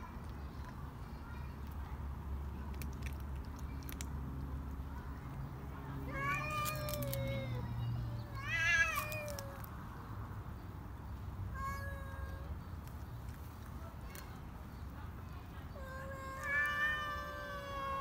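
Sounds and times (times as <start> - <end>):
cats yowling: 6.1 - 9.7, 11.5 - 12.5, 15.8 - 18.0.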